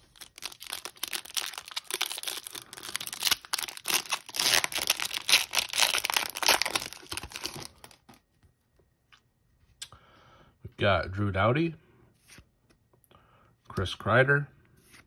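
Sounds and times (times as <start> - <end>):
foil wrapper crinkling and tearing: 0.0 - 8.2.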